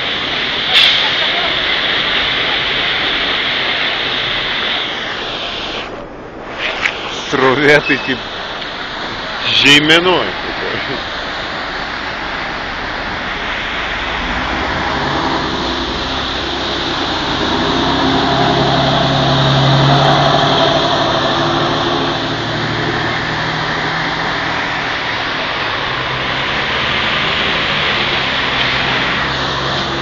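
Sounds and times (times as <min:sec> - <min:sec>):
floodwater rushing: 0:00.0 - 0:30.0
motor vehicle passing: 0:11.6 - 0:30.0.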